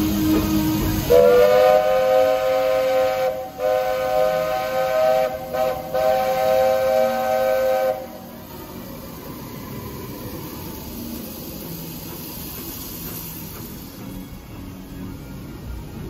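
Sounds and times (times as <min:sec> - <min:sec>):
steam locomotive whistle: 0:00.0 - 0:08.6.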